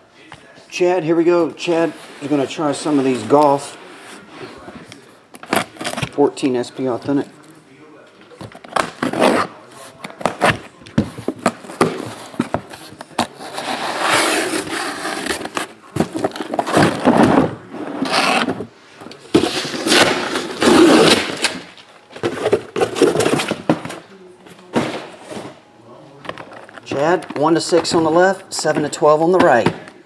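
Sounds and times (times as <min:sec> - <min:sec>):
cardboard scraping and rustling: 0:10.1 - 0:21.6.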